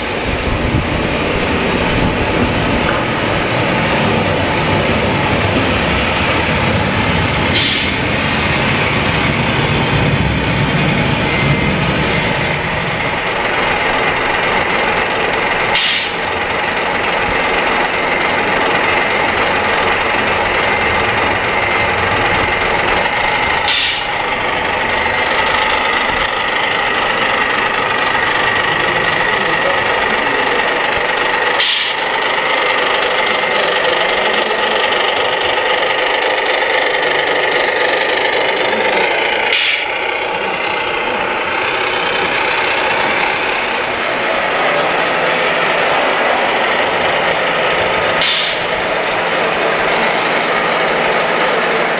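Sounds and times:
model truck engine drone: 0.0s - 51.9s.

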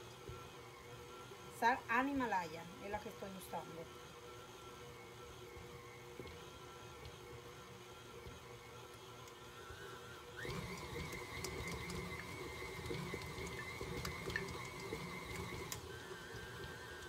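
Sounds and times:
stand mixer motor whine: 0.0s - 17.0s
light clicks of mixer beater: 5.5s - 7.3s, 8.2s - 9.8s, 10.4s - 17.0s.

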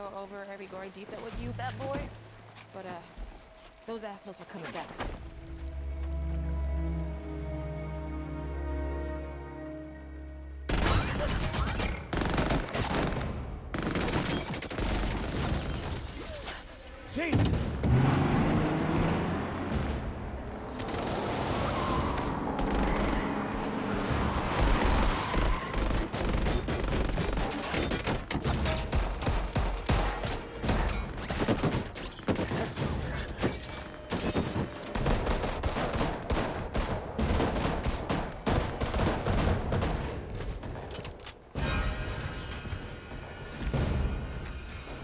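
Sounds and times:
film score music: 0.0s - 13.8s.

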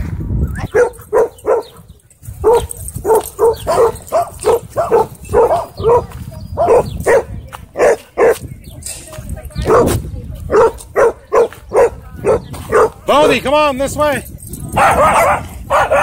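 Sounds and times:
dog barking: 0.7s - 1.8s, 2.4s - 8.4s, 9.6s - 13.0s, 14.8s - 16.0s.

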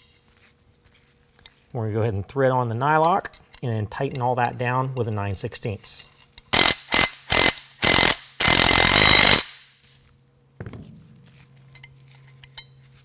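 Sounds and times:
impact driver hammering: 6.6s - 9.6s.

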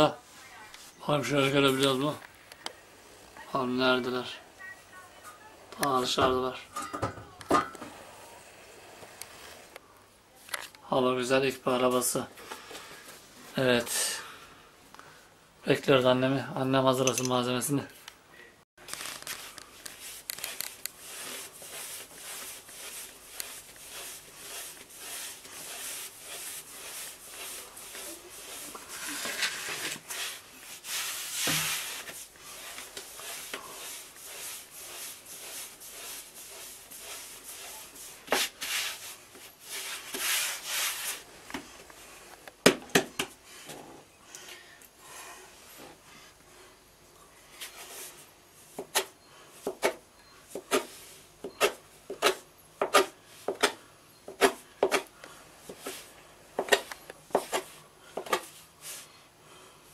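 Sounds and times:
hands kneading dough on wood: 19.4s - 42.0s, 47.6s - 59.1s
dough swishes: 21.0s - 41.3s.

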